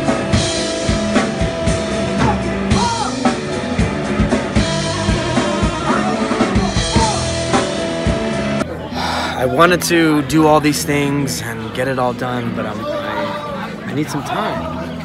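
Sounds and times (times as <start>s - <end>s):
drum kit beat: 0.0s - 8.6s
keyboard: 0.0s - 15.0s.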